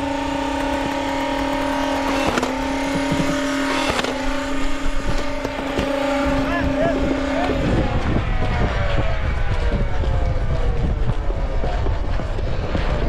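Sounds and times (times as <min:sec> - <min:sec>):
sharp clicks of darts firing: 0:00.0 - 0:04.2
toy blaster flywheels whining: 0:00.0 - 0:07.6.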